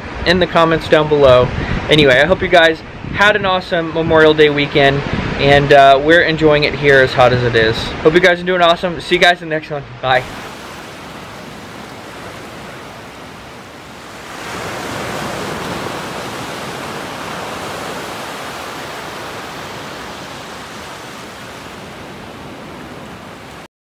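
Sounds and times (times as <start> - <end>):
waves breaking on a beach: 4.0 - 5.7, 10.1 - 23.7.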